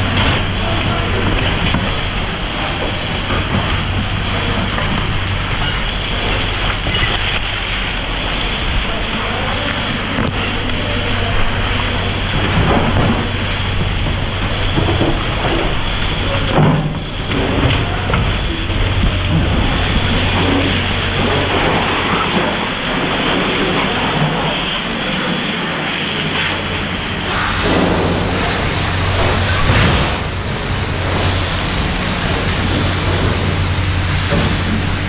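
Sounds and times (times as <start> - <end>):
hose water spraying hiss: 0.0 - 35.0
low hum: 0.0 - 35.0.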